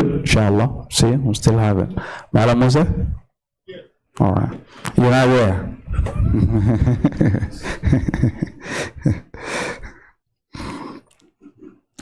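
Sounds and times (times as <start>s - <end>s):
man talking close to microphone: 0.0s - 5.9s.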